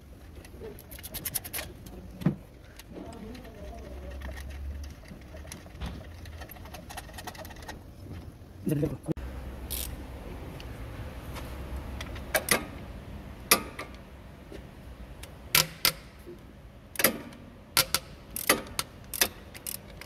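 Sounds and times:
ratchet wrench clicking: 9.7s - 10.0s, 17.0s - 20.0s.

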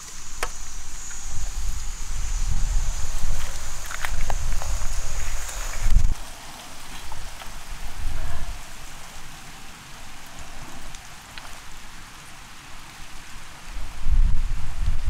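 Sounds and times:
low rumbles: 0.0s - 11.8s
rain-like outdoor hiss: 0.0s - 15.0s
wind gusting on microphone: 0.0s - 15.0s
faint clicks: 10.2s - 11.6s.

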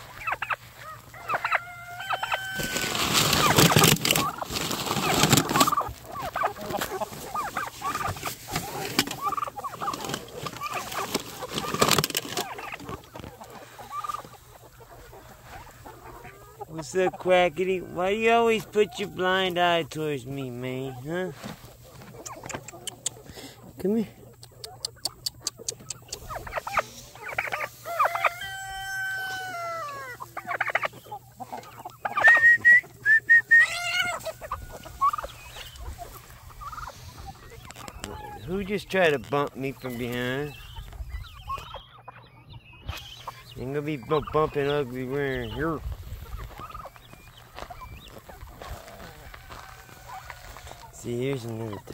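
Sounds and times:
loud rasping poultry call: 0.0s - 20.7s, 24.9s - 38.8s, 45.4s - 51.9s
chickens clucking: 0.0s - 51.9s
rooster crowing: 1.1s - 3.0s, 27.8s - 30.2s, 49.0s - 50.8s.

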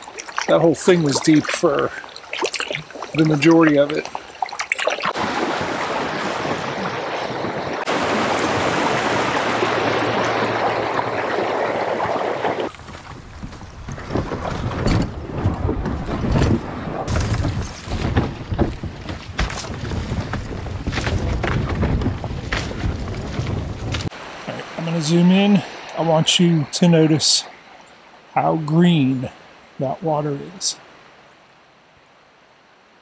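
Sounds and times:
river water rushing: 0.0s - 13.1s, 24.1s - 33.0s
splashing while wading: 0.0s - 13.4s.

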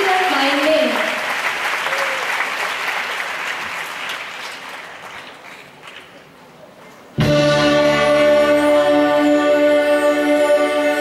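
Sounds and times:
audience applause: 0.0s - 6.3s
string orchestra chord: 7.2s - 11.0s.

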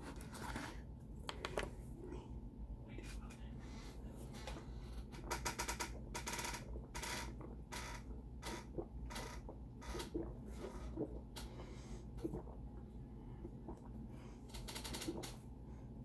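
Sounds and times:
gulping water: 4.3s - 16.0s.

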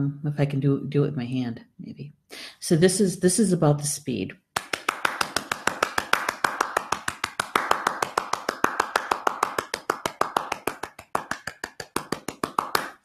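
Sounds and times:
hand tapping fast beat: 4.6s - 13.0s.

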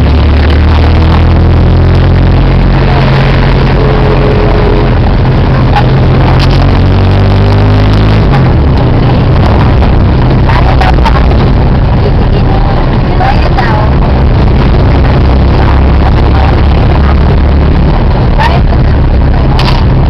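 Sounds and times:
road noise: 0.0s - 20.0s
vehicle engine drone: 0.0s - 20.0s.

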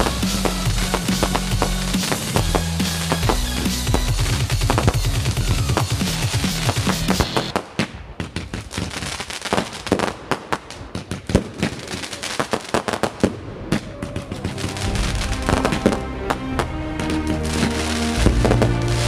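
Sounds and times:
background music: 0.0s - 7.5s, 14.2s - 19.0s
fireworks bangs and crackles: 0.0s - 19.0s.

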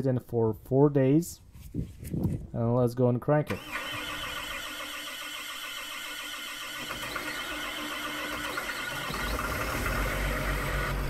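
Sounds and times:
diesel engine cranking without firing: 3.5s - 11.0s.

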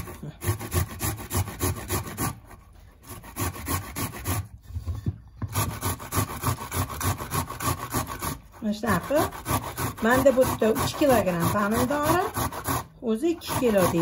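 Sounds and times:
tomato scraping on metal grater: 0.0s - 4.5s, 5.5s - 14.0s.

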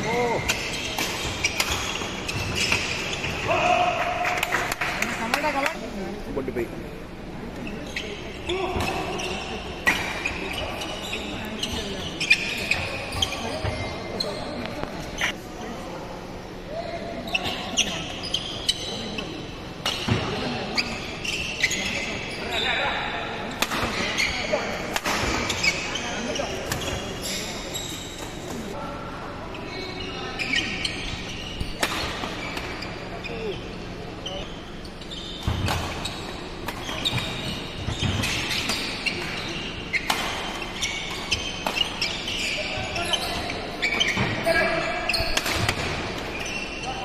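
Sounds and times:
shoes squeaking on court: 0.0s - 3.6s, 7.5s - 15.4s, 17.2s - 23.0s, 23.8s - 28.8s, 29.5s - 47.0s
racket hitting shuttlecock: 45.2s - 46.3s.

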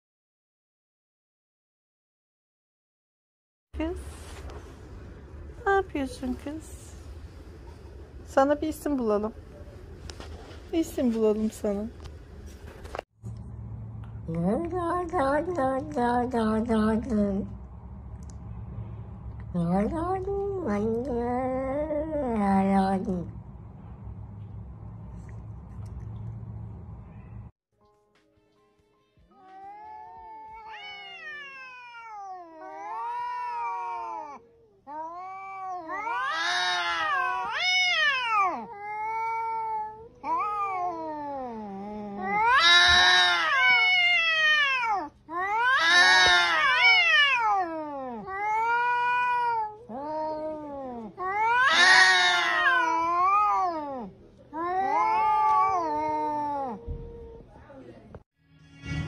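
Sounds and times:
cats yowling: 29.4s - 57.5s.

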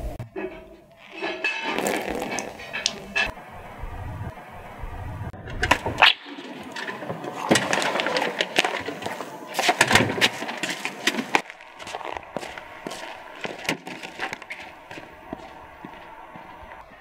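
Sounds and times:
footsteps on a step: 6.9s - 16.9s.

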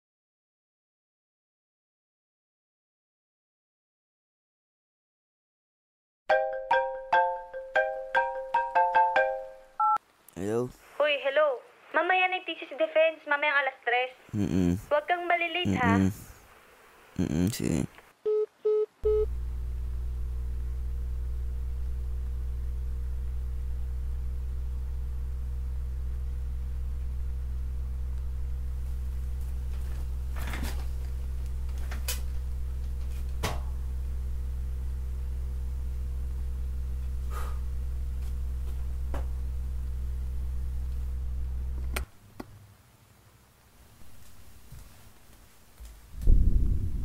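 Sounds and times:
low buzzy electrical hum: 14.2s - 18.0s, 19.0s - 47.0s.

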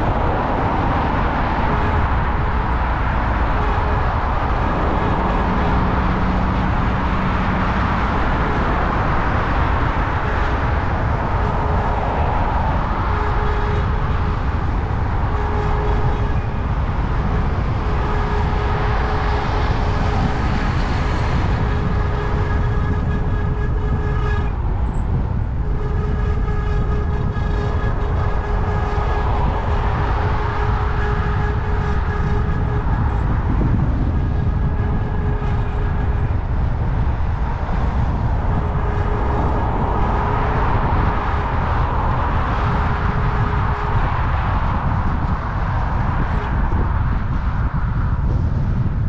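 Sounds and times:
moving vehicle rumbling: 0.0s - 49.0s.

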